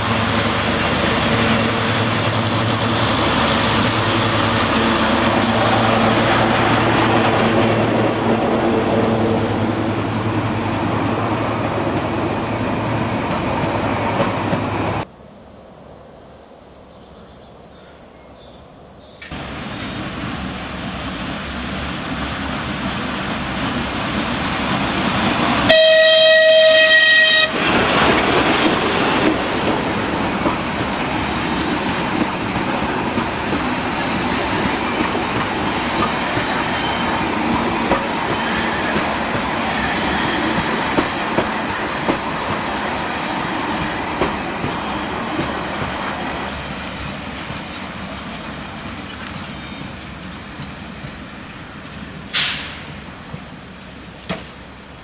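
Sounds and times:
diesel train passing: 0.0s - 18.3s, 19.2s - 55.0s
locomotive horn blast: 25.7s - 27.6s.

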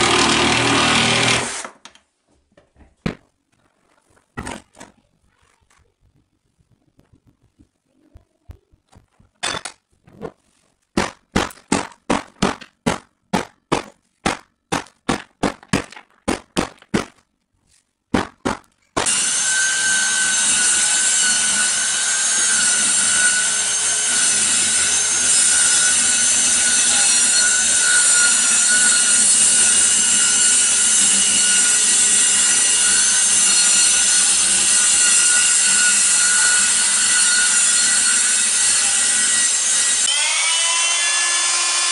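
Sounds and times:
circular saw cutting: 0.0s - 1.7s, 19.0s - 41.9s
sharp knocks: 10.9s - 17.2s.

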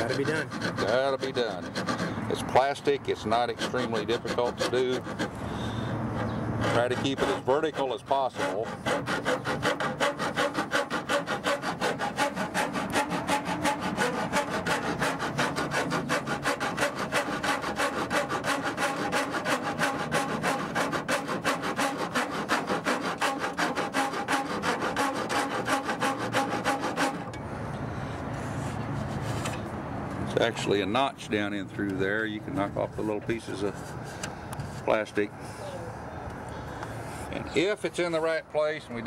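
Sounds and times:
rasp filing plastic: 0.0s - 27.4s.

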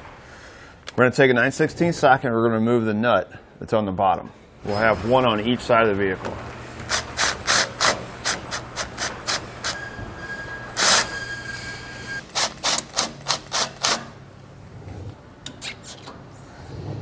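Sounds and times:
power tool ratchet clicks: 12.3s - 14.1s.

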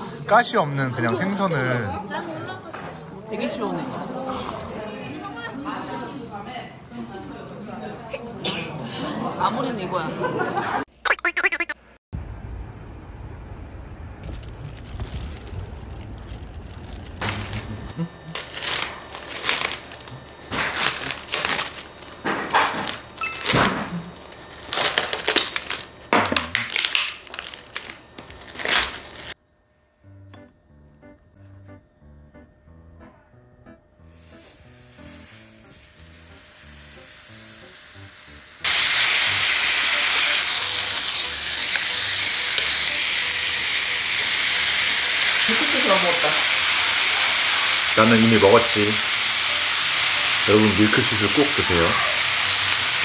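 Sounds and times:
plastic wrap crinkling: 14.2s - 29.4s, 44.2s - 53.0s
soft background music: 30.0s - 38.1s
meat sizzling on a grill pan: 34.1s - 53.0s.

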